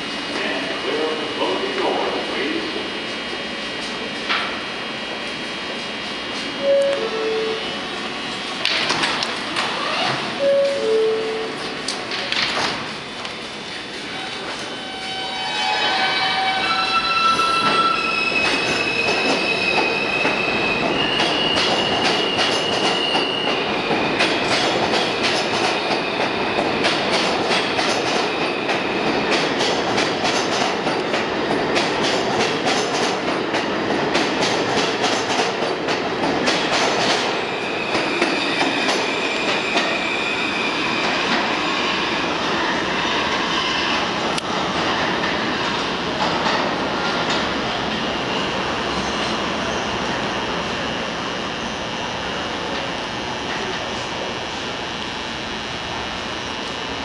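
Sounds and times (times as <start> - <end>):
wheels clattering on rails: 18.4 - 39.9
train motor whine: 48.2 - 57.0.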